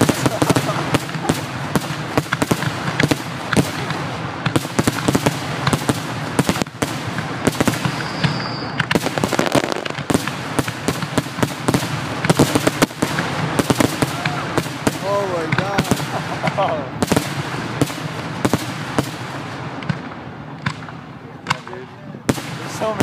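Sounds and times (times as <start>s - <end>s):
fireworks barrage of sharp bangs: 0.0s - 23.0s
high firework whistle: 7.6s - 9.9s.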